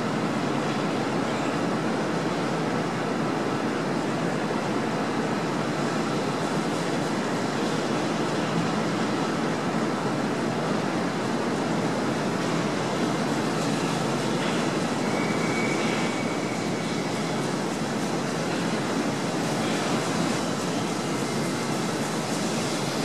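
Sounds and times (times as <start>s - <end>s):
train rolling on rails: 0.0s - 23.0s
thin high squeal: 15.0s - 17.5s.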